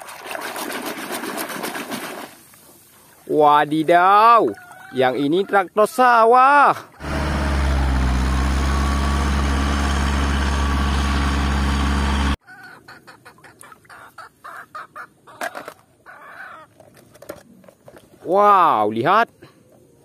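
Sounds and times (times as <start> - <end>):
tractor diesel engine running: 7.0 - 12.4.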